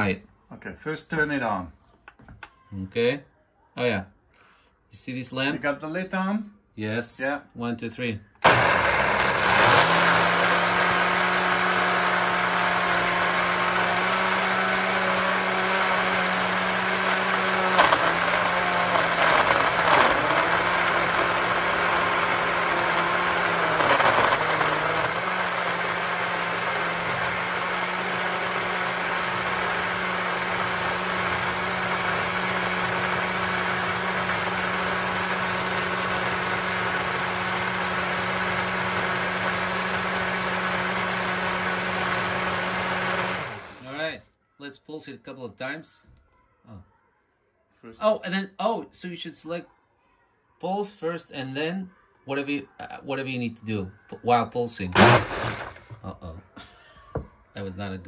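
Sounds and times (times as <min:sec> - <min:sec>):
blender motor running: 0:08.4 - 0:44.0, 0:55.0 - 0:56.0.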